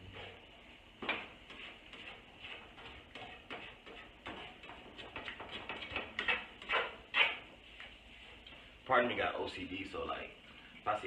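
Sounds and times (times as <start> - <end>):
spatula scraping frying pan: 0.0 - 7.5.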